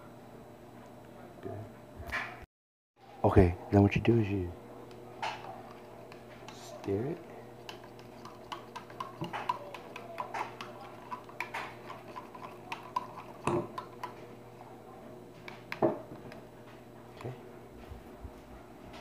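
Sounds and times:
louder knocks on cup: 15.8s - 16.0s.

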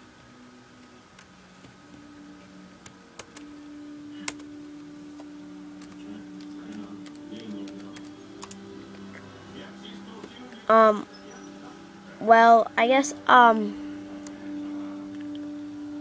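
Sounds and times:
low steady hum: 0.0s - 16.0s
computer keys clicking: 2.8s - 3.5s, 4.2s - 4.5s, 5.2s - 8.6s.

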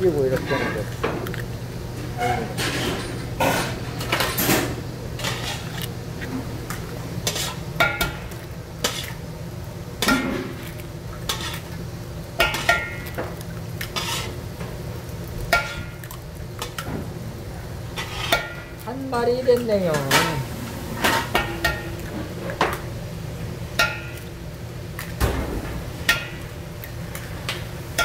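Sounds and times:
steady low hum: 0.0s - 28.0s
metal spatula scraping griddle: 5.2s - 5.8s, 7.2s - 7.6s, 13.9s - 14.4s, 18.0s - 18.7s.

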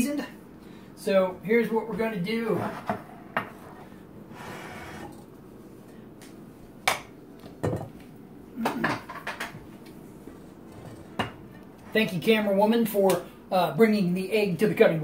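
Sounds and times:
dishes knocking and clinking: 7.6s - 8.0s, 8.6s - 9.7s, 10.8s - 11.5s.

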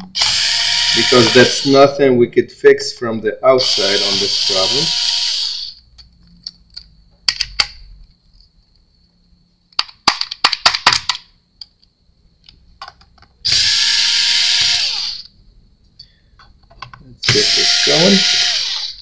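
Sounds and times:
electric screwdriver motor running: 0.2s - 1.7s, 13.5s - 15.3s, 17.3s - 19.0s.

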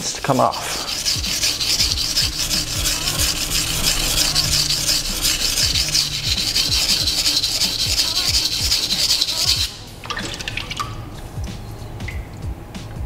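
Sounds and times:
knife blade scraping on whetstone: 0.2s - 9.8s.

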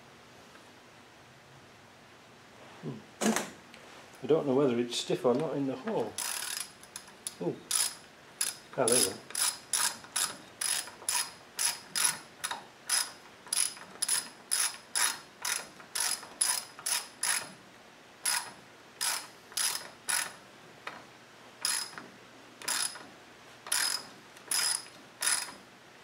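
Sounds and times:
socket ratchet clicking: 6.2s - 17.5s, 18.3s - 20.4s, 21.6s - 22.0s, 22.6s - 23.0s, 23.7s - 25.6s.

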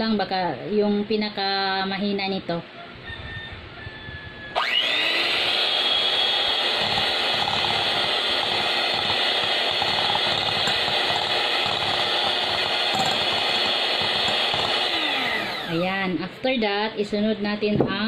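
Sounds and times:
electric hand mixer running: 4.6s - 16.0s.

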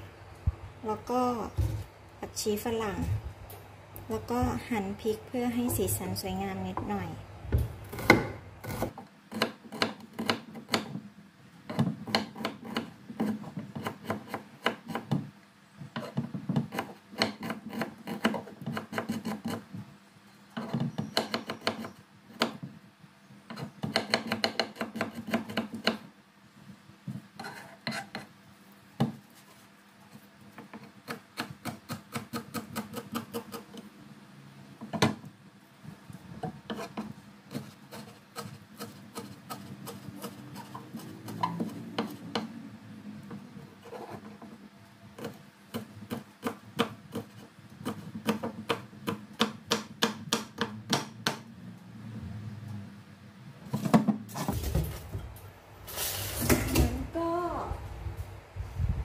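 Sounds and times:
knife chopping on wooden board: 7.5s - 11.0s, 11.7s - 15.3s, 23.5s - 26.0s, 45.2s - 51.4s.

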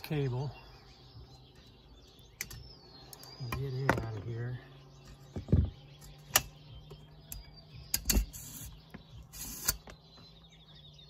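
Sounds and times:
sharp clicks and knocks: 2.4s - 4.2s, 5.0s - 10.3s
short scraping rasps: 8.1s - 9.9s.

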